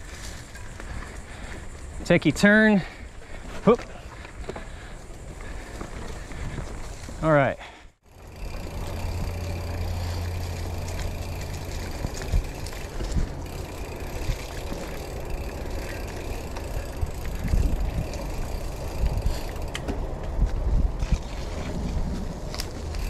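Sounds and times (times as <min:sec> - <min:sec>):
bike knocking and rattling: 0:00.0 - 0:23.0
bike tyre noise on dirt: 0:00.0 - 0:23.0
wind on microphone: 0:16.8 - 0:23.0.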